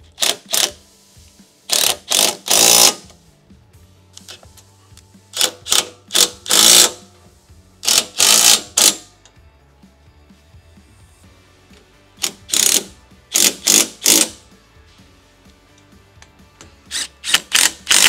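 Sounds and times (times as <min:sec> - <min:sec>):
impact wrench hammering: 0:01.7 - 0:03.0, 0:05.3 - 0:07.1, 0:07.8 - 0:09.1, 0:12.2 - 0:14.4, 0:17.0 - 0:18.0.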